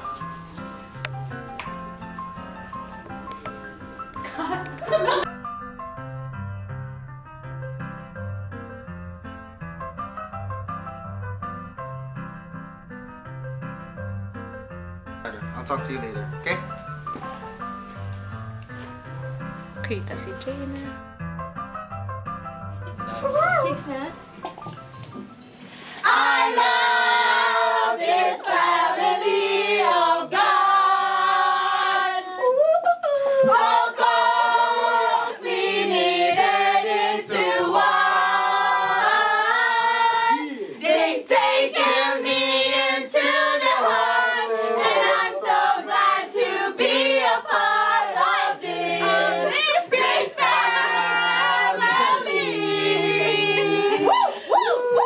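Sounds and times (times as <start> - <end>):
several voices singing: 26.0 - 54.1.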